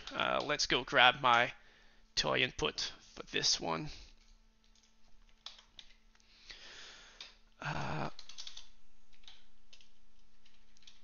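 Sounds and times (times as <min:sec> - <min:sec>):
keyboard keys clicking: 0:04.6 - 0:06.0, 0:08.2 - 0:11.0.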